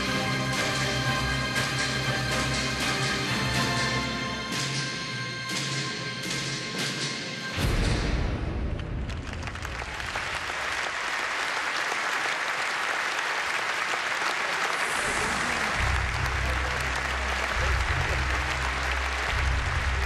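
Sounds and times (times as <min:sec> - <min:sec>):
large audience applauding: 0:08.7 - 0:20.0
low rumble: 0:14.9 - 0:20.0.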